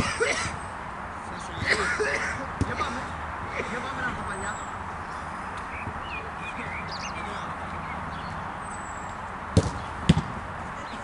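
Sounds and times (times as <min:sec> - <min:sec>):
outdoor background hiss: 0:00.0 - 0:11.0
bird chirps: 0:04.5 - 0:10.0
football being kicked: 0:09.5 - 0:10.4.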